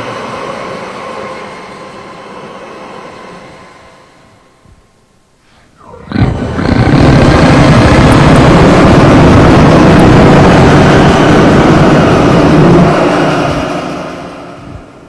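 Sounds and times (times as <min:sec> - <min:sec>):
harsh distorted noise music: 0:05.8 - 0:14.5.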